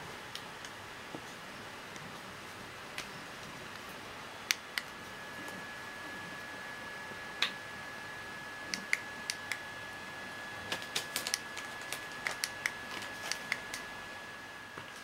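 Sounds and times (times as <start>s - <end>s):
plastic packaging crackling: 10.7s - 13.8s.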